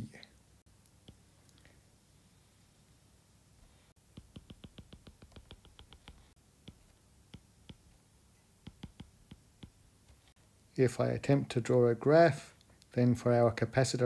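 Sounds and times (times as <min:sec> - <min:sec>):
stylus tapping on a tablet: 0:04.0 - 0:08.0, 0:08.6 - 0:09.8.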